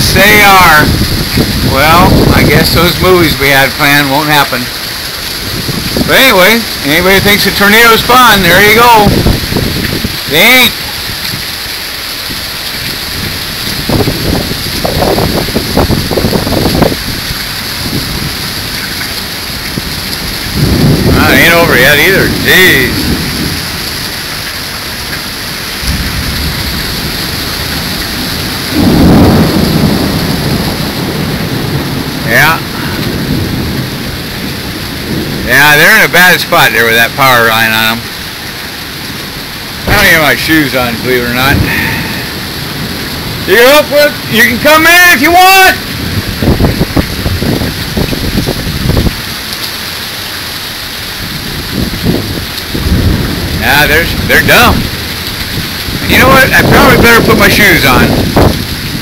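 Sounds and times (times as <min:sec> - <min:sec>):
heavy rain: 0:00.0 - 0:59.0
low gusty rumbles: 0:00.0 - 0:59.0
strong wind: 0:00.0 - 0:59.0.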